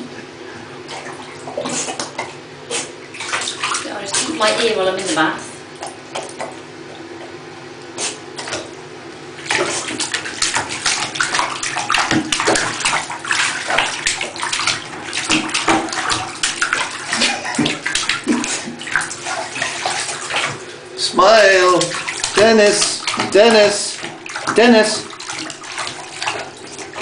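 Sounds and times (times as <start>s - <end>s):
water splashing in a bathtub: 0.0s - 27.0s.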